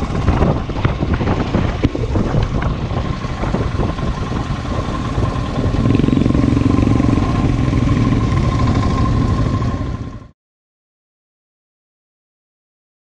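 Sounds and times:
motorcycle engine running: 0.0 - 10.3.

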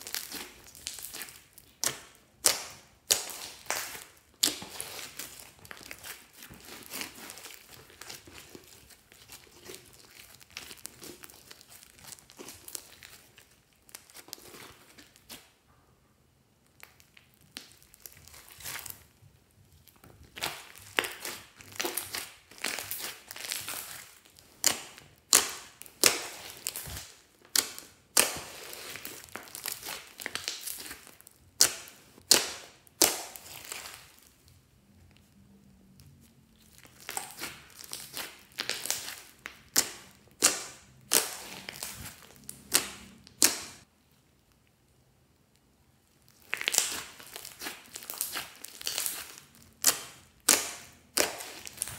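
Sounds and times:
slime squeezed by hand: 36.5 - 43.8
sticky crackles and pops: 45.5 - 51.9.

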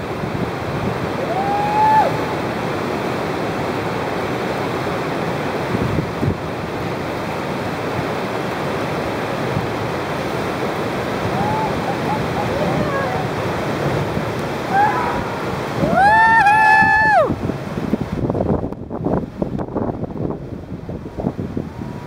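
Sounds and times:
whitewater rapid roaring: 0.0 - 22.0
person whooping: 1.2 - 2.3, 11.3 - 13.3, 14.7 - 17.4.

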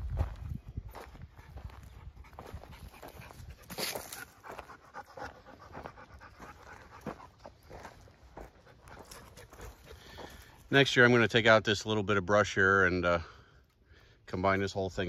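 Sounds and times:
footsteps crunching on dead leaves: 0.0 - 4.8, 5.7 - 10.6
dog panting: 1.3 - 10.6.

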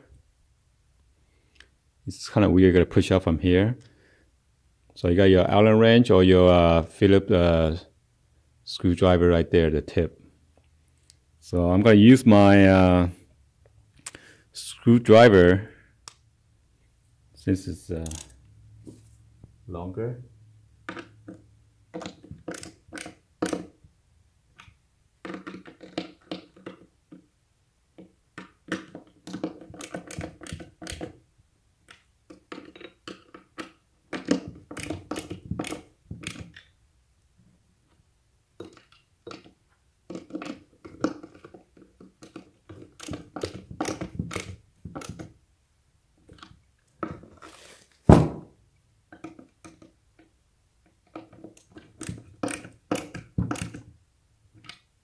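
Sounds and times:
ratcheting tool clicks: 18.0 - 18.4, 31.9 - 36.7
loud thunk: 48.1 - 48.5.

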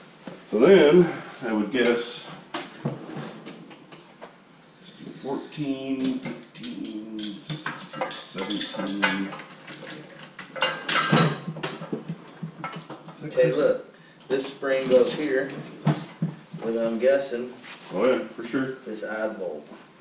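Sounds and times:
metal parts and tools clanking: 6.0 - 13.5, 14.2 - 16.8.

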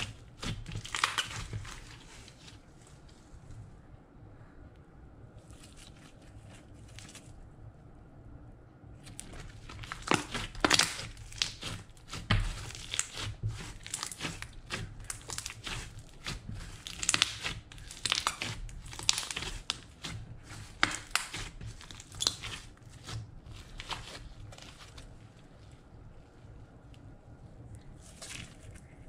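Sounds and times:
slime crackling when stretched by hand: 0.0 - 2.5, 9.0 - 25.4.

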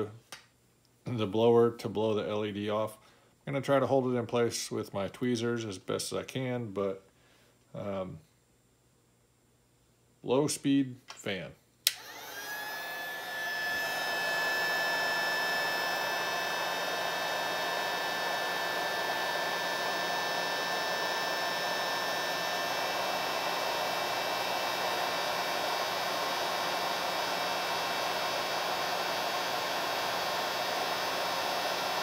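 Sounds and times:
heat gun blowing air: 11.9 - 32.0.

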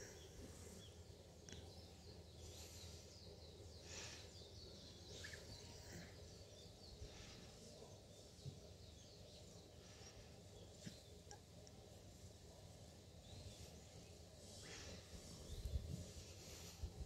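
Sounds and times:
faint bird chirps: 0.0 - 17.0
soft rustle: 9.7 - 17.0.

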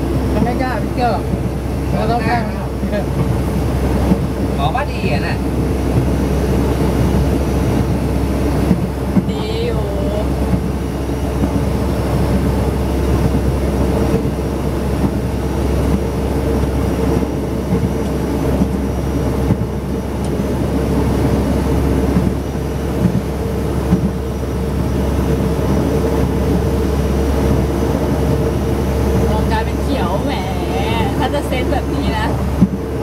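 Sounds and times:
train rumbling and rattling: 0.0 - 33.0
train track knocks: 15.9 - 20.5, 22.1 - 25.0.

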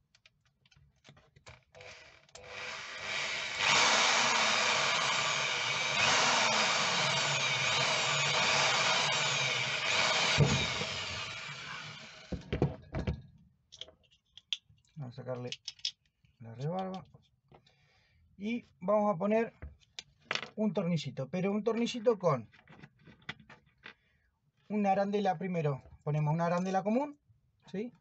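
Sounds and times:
electric drill boring: 1.7 - 12.5.

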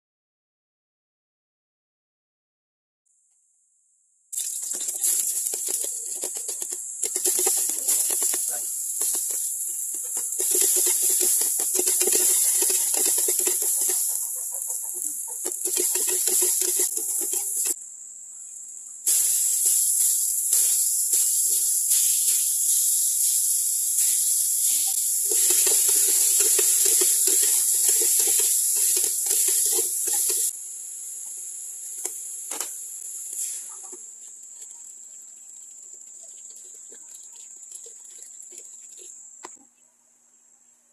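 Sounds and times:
chicken sizzling in hot oil: 4.3 - 17.8, 19.1 - 34.8.

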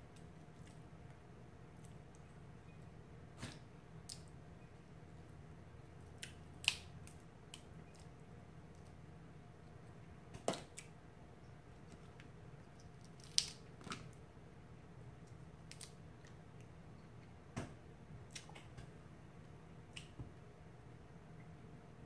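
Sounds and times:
faint steady hum: 0.0 - 22.0
crab shells cracking: 6.0 - 8.1, 12.8 - 14.2.

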